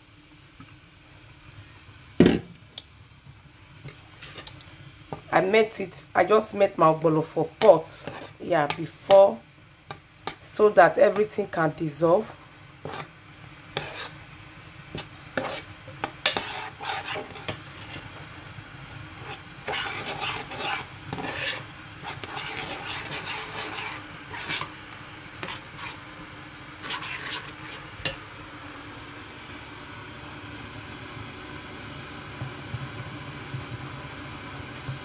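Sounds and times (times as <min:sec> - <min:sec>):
spoon scraping steel pot: 0:07.6 - 0:09.3, 0:12.8 - 0:13.1, 0:13.8 - 0:14.2, 0:15.0 - 0:18.0, 0:19.2 - 0:24.7, 0:25.4 - 0:26.0, 0:26.8 - 0:28.2.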